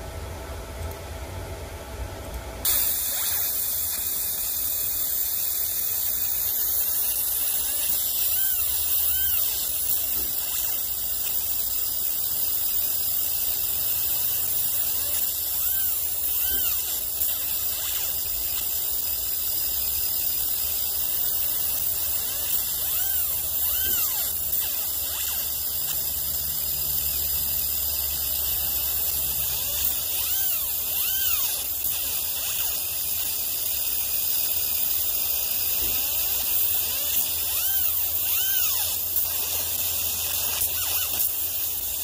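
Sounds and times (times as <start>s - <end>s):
low machine hum: 0.0s - 32.8s
laser engraving hiss and whine: 2.6s - 42.0s.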